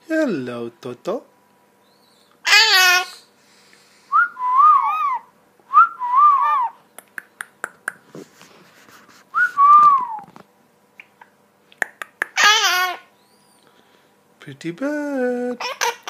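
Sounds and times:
parrot whistling: 4.1 - 6.8.

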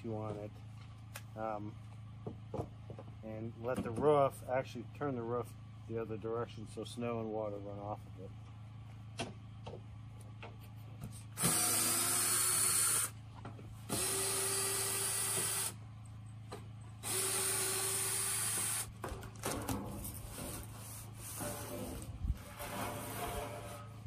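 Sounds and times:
cordless drill running: 11.4 - 13.2, 13.9 - 15.8, 17.0 - 18.9.

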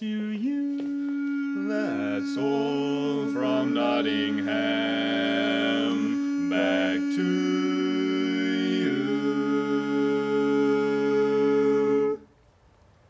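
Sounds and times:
men singing in harmony: 0.0 - 12.2.

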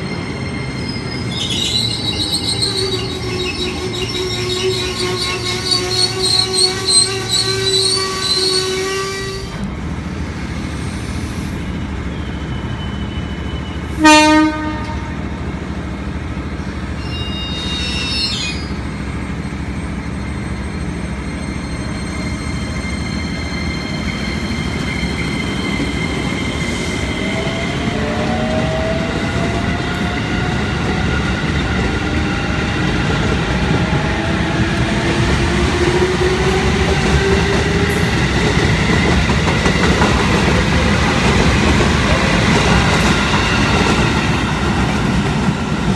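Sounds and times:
rising train whine: 0.0 - 45.9
train horn blast: 3.8 - 9.6, 13.9 - 15.3.

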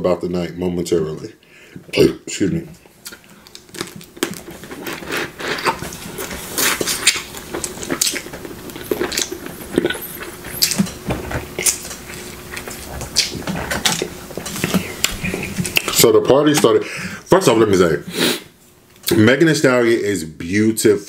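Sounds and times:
sucking and chewing crab meat: 3.0 - 16.0.

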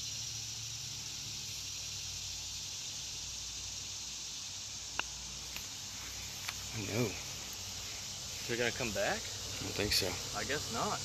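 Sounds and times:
high hiss of insects: 0.0 - 11.0.

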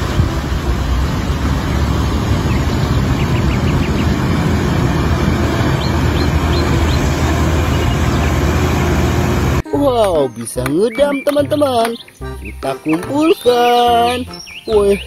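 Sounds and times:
water splashing around wheels: 0.0 - 9.6
dump truck diesel engine: 0.0 - 9.7.

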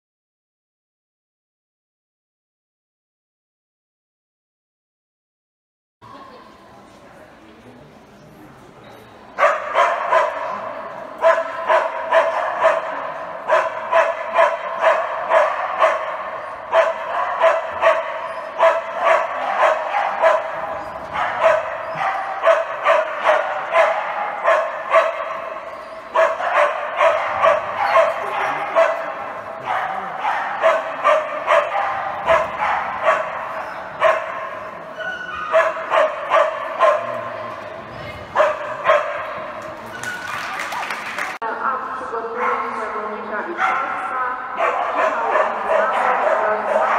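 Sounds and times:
dog barking loudly: 9.4 - 37.6, 38.3 - 39.5, 43.6 - 46.9.

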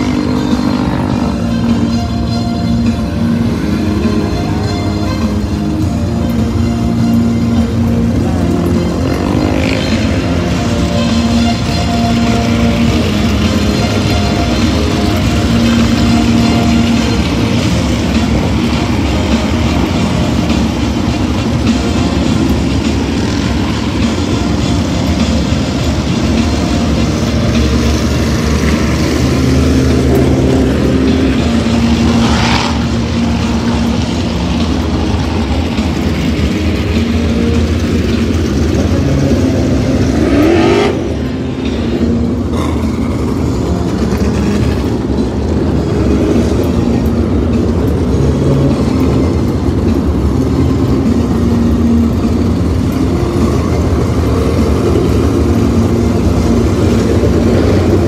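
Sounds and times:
car engine revving: 0.0 - 58.0
race car engines running: 0.0 - 58.0.

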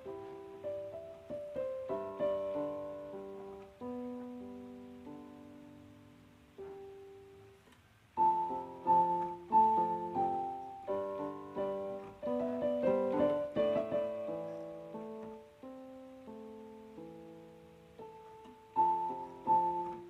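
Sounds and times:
piano music: 0.0 - 20.0.

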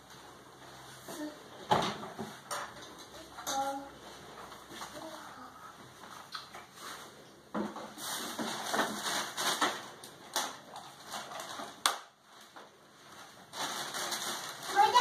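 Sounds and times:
objects clattering in a drawer: 7.6 - 11.8.

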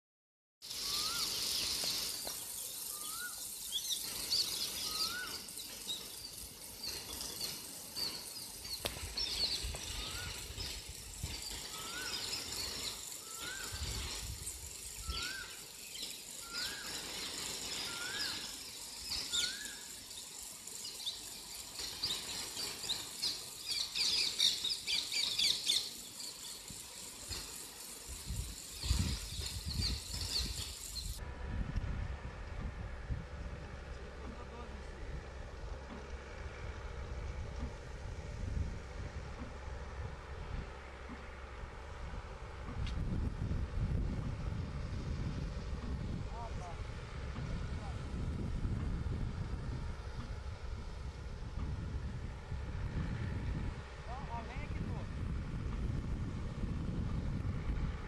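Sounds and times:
sprinkler spraying water: 0.6 - 31.3, 32.3 - 58.0
bird short rising call: 0.7 - 5.6
birds chirping: 0.7 - 31.2.

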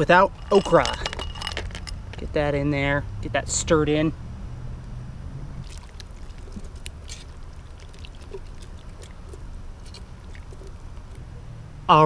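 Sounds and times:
low steady rumble: 0.0 - 12.0
wet sloshing of stirred stew: 5.6 - 11.4.

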